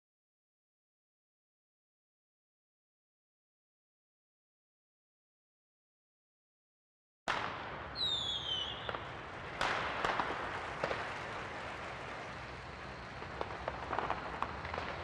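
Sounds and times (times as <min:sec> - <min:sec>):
sharp cracks or bangs: 0:07.3 - 0:15.0
steady hiss: 0:07.4 - 0:15.0
falling whistle: 0:08.0 - 0:09.0.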